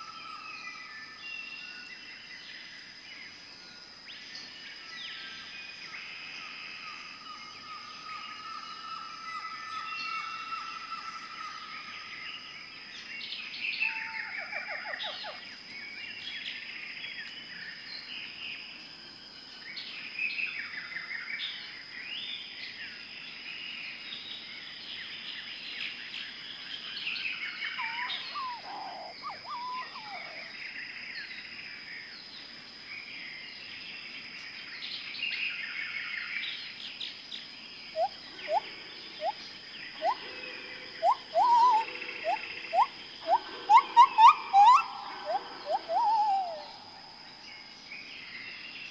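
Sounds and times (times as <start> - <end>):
small birds chirping: 24.4 - 48.9
short rising bird calls: 41.0 - 46.9.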